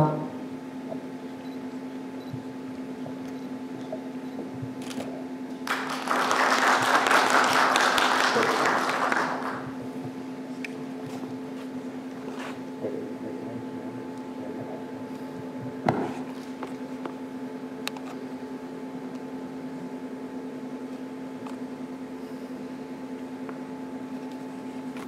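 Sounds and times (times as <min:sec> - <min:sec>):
low hum in hall: 0:00.0 - 0:25.0
audience applauding: 0:05.6 - 0:09.8.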